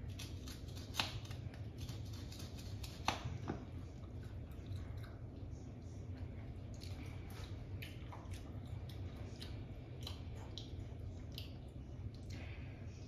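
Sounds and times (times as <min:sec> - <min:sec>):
wet chewing clicks: 0:06.1 - 0:12.5.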